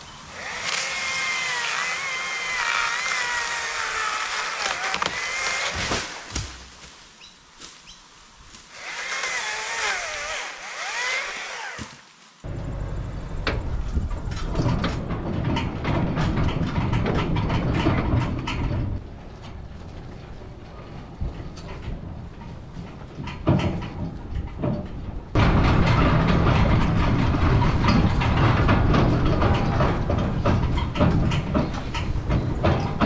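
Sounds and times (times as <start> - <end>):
vehicle rumble with rattling: 12.5 - 33.0.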